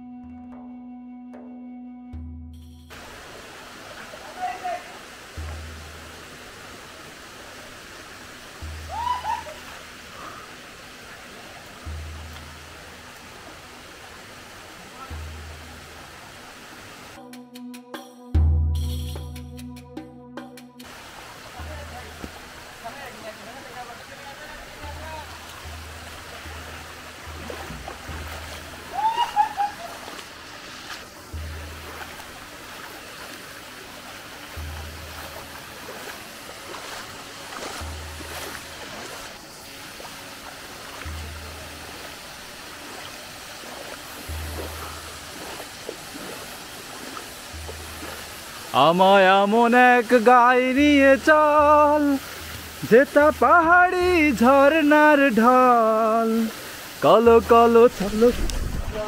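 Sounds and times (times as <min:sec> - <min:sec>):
background music with deep bass: 0:00.0 - 0:03.0, 0:05.3 - 0:07.0, 0:11.6 - 0:16.5, 0:17.1 - 0:22.8, 0:24.7 - 0:59.0
flowing water rushing: 0:02.9 - 0:17.2, 0:20.8 - 0:59.0
high rising and falling call: 0:08.9 - 0:09.7, 0:28.8 - 0:30.1.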